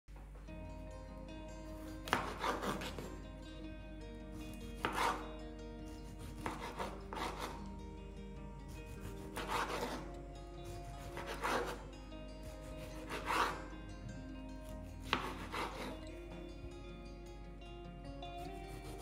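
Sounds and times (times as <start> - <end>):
soft background music: 0.1 - 19.0
knife slicing tomato on board: 2.0 - 3.2, 4.6 - 5.3, 5.9 - 7.7, 8.7 - 11.8, 12.4 - 13.7, 14.6 - 16.0, 18.8 - 19.0.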